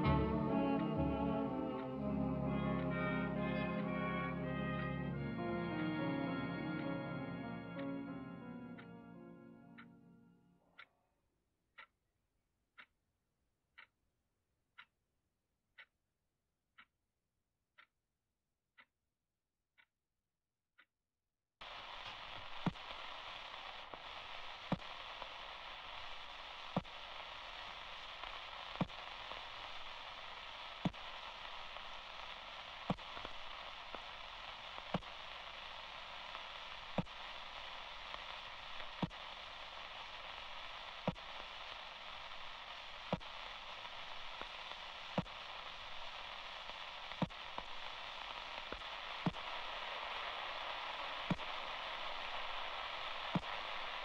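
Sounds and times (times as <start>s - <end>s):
radio static hiss: 0.0s - 8.3s, 21.6s - 54.0s.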